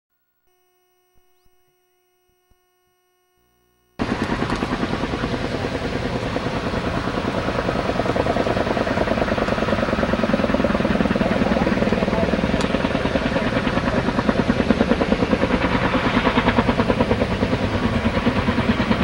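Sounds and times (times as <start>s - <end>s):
helicopter rotor beating: 4.0s - 19.0s.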